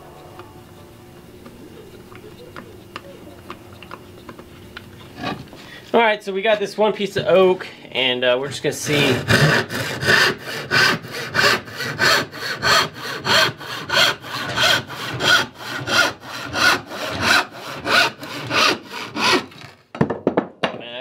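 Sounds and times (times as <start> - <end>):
hand saw cutting wood: 8.4 - 19.8.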